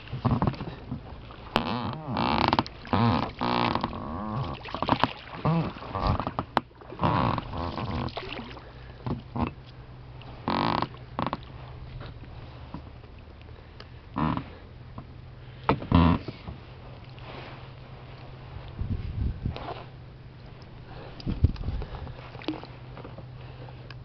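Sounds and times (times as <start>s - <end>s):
boat oar mounts creaking: 0.0s - 8.2s, 8.9s - 13.5s, 14.1s - 17.2s.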